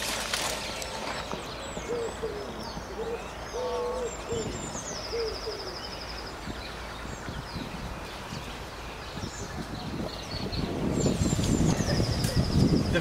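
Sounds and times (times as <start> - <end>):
bird hooting: 1.8 - 5.9.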